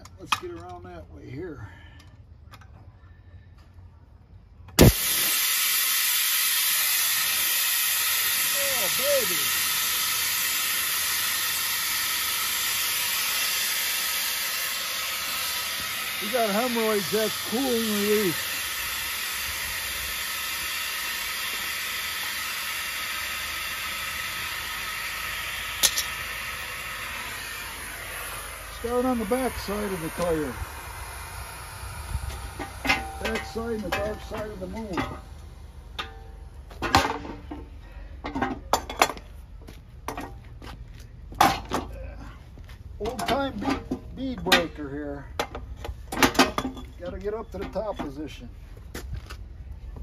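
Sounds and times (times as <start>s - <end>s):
air hissing out of tire valve: 4.8s - 36.7s
metal clanks and rattles: 35.9s - 39.3s, 43.0s - 44.8s, 45.4s - 48.2s.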